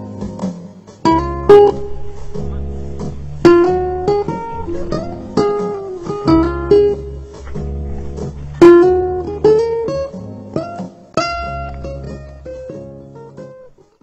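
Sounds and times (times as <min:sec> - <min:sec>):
acoustic guitar music: 0:01.1 - 0:13.9
low sustained bass: 0:01.2 - 0:09.9.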